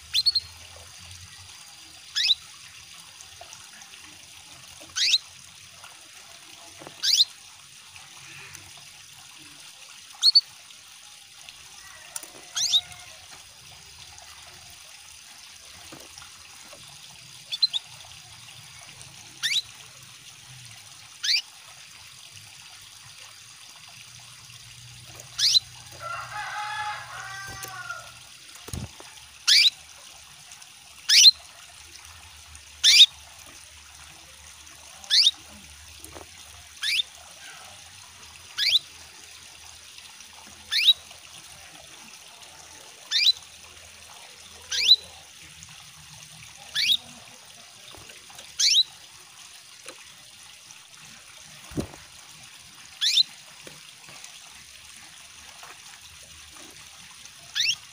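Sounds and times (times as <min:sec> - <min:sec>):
water trickling: 0:00.0 - 0:57.9
canary call notes: 0:00.1 - 0:00.5, 0:02.1 - 0:02.4, 0:04.9 - 0:05.2, 0:07.0 - 0:07.3, 0:10.2 - 0:10.4, 0:11.8 - 0:13.2, 0:17.5 - 0:17.9, 0:19.4 - 0:19.7, 0:21.2 - 0:21.5, 0:25.3 - 0:28.2, 0:29.5 - 0:29.8, 0:31.1 - 0:31.4, 0:32.8 - 0:33.1, 0:35.1 - 0:35.4, 0:36.8 - 0:37.6, 0:38.6 - 0:38.8, 0:40.7 - 0:41.0, 0:43.1 - 0:43.4, 0:44.6 - 0:45.2, 0:46.6 - 0:47.2, 0:48.6 - 0:48.9, 0:53.0 - 0:53.4, 0:57.5 - 0:57.9
bird chattering: 0:05.0 - 0:05.2, 0:19.4 - 0:19.6, 0:25.4 - 0:25.7, 0:44.7 - 0:45.0, 0:46.7 - 0:47.1, 0:48.6 - 0:48.8, 0:53.0 - 0:53.2, 0:57.6 - 0:57.8.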